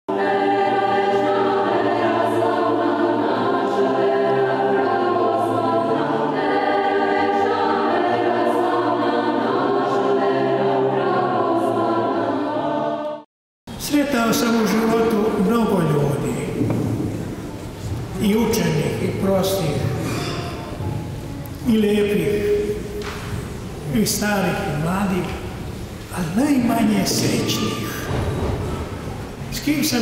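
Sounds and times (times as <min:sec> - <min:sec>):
choir singing sustained chords: 0:00.1 - 0:13.3, 0:14.4 - 0:29.9.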